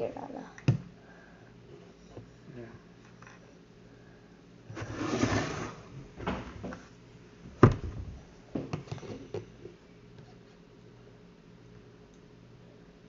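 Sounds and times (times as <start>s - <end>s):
rustling scrape: 4.7s - 6.0s.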